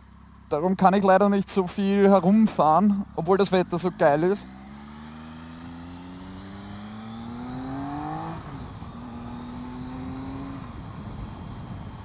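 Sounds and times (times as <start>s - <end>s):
motorcycle engine accelerating: 2.6s - 12.0s.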